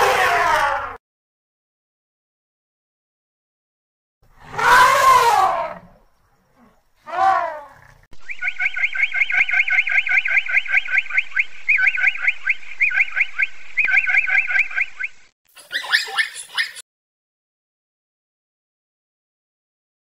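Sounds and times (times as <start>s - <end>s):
elephant trumpeting: 4.4s - 5.9s, 6.6s - 8.0s.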